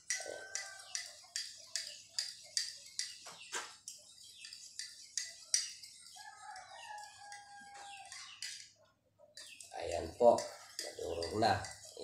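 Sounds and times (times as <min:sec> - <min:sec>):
spoon clinking in a mug: 0:00.0 - 0:03.2, 0:03.8 - 0:08.8, 0:09.4 - 0:12.0
rooster crowing: 0:00.2 - 0:01.0, 0:06.2 - 0:08.2.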